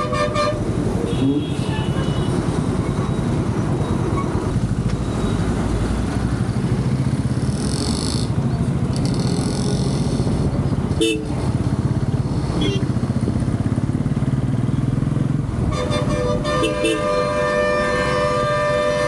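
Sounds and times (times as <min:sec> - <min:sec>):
motorcycle engine running: 0:06.2 - 0:16.0.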